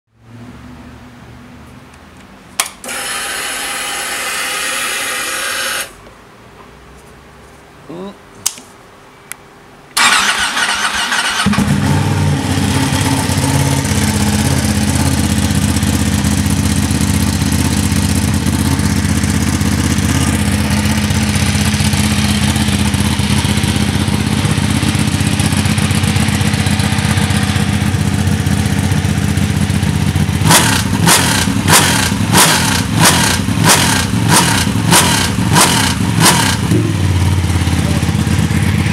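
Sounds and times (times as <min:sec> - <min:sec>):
motorcycle engine idling: 0:11.4 - 0:38.9.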